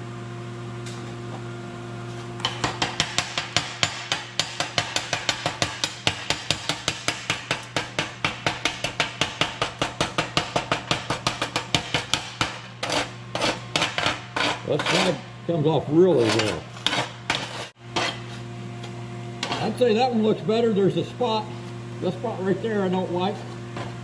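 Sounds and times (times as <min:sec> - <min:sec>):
steady low hum: 0:00.0 - 0:24.0
hammer chipping metal: 0:02.4 - 0:15.2, 0:16.0 - 0:18.3.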